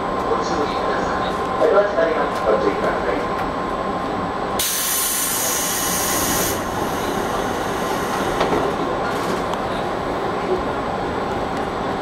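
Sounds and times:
electric train rumbling: 0:00.0 - 0:12.0
loud hiss: 0:04.6 - 0:08.4.

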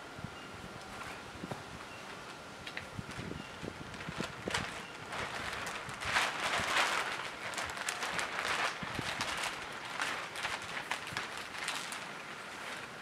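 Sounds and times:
plastic sheet crinkling: 0:03.1 - 0:13.0.

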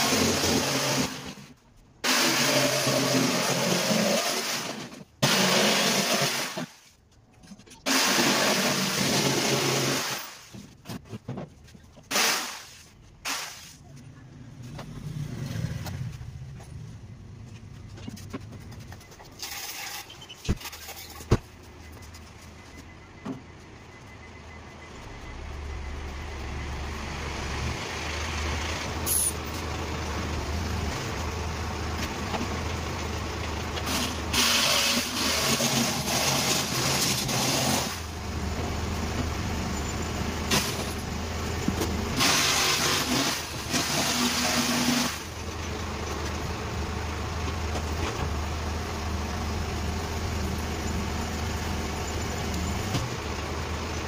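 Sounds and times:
steady low hum: 0:21.5 - 0:33.0.

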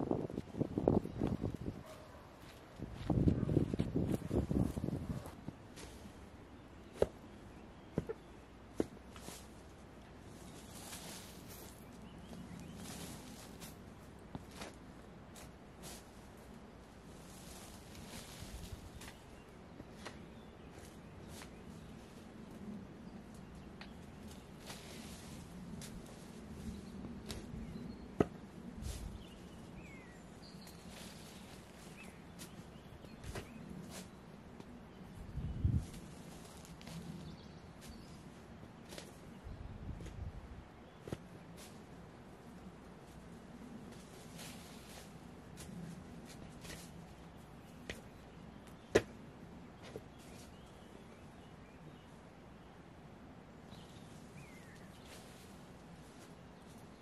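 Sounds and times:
soft rustling: 0:08.0 - 0:22.7, 0:35.6 - 0:39.4, 0:41.0 - 0:48.2.

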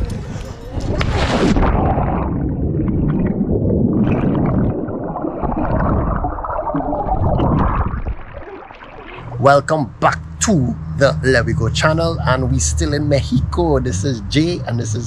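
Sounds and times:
underwater rumbling and gurgling: 0:00.0 - 0:09.5.

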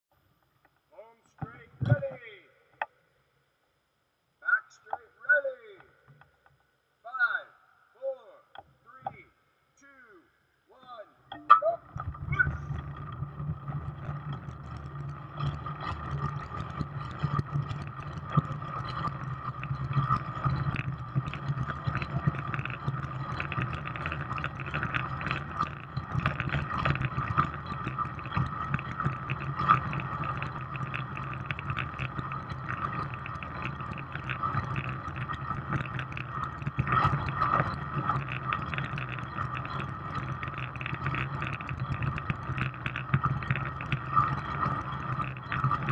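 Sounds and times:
bike tyres humming on wooden boards: 0:11.4 - 0:45.9.

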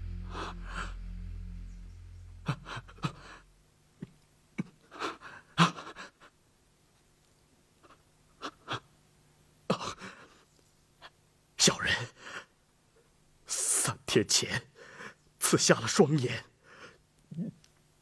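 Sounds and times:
low hum: 0:00.0 - 0:04.2.

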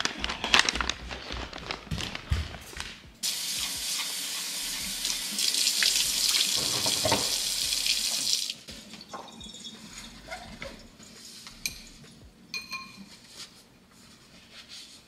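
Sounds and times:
tap water running into sink: 0:03.3 - 0:08.6.

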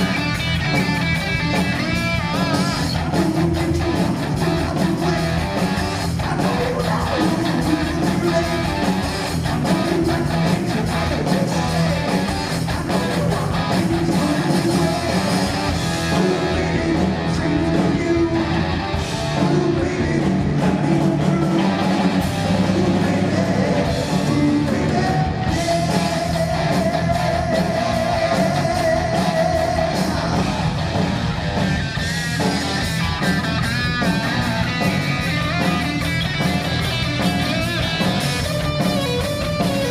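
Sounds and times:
heavy metal band playing live: 0:00.0 - 0:39.9
sung vocals: 0:01.6 - 0:31.1.

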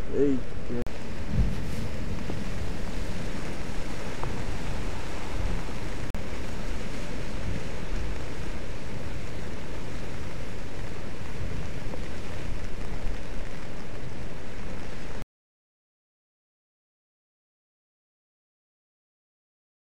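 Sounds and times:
wind on microphone: 0:00.0 - 0:15.2
surf breaking against rocks: 0:01.0 - 0:14.2.

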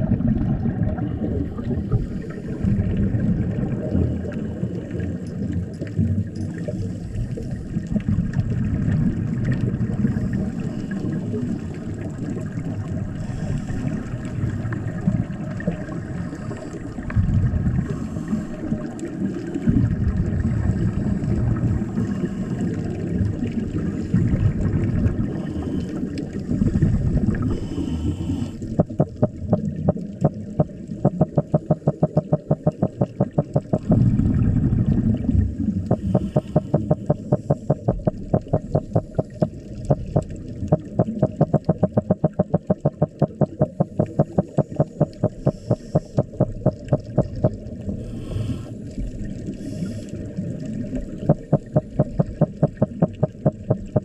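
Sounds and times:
underwater water noise: 0:00.0 - 0:54.0
fish alarm sounds underwater: 0:27.3 - 0:48.6, 0:50.8 - 0:54.0.

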